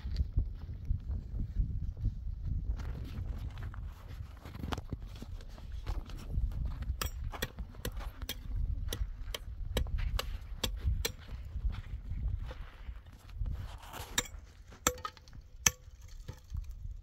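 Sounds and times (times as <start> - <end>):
steady low rumble: 5.6 - 17.0
concrete blocks clicking and knocking: 14.1 - 17.0.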